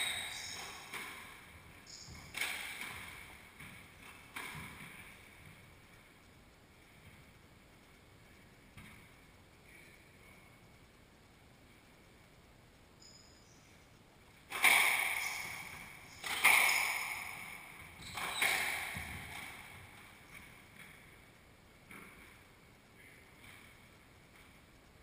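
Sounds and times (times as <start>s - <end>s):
faint shoe squeaks: 0.0s - 0.9s, 1.8s - 2.3s, 13.0s - 13.7s, 15.1s - 17.2s, 18.0s - 19.1s
squash ball cracking off racket and walls: 0.0s - 5.6s, 14.5s - 21.1s.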